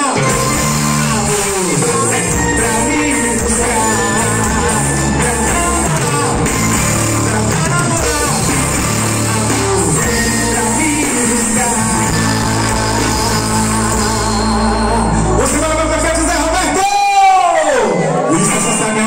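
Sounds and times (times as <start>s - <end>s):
drum kit: 0.0s - 15.6s
electric guitars: 0.0s - 16.6s
man singing: 0.0s - 19.0s.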